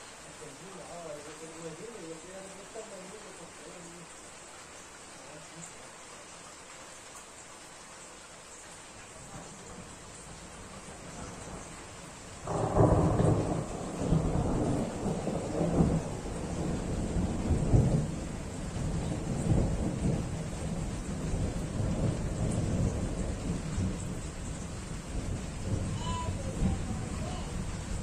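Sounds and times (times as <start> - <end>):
steady rain: 0.0 - 28.0
thunder rumbling: 9.2 - 28.0.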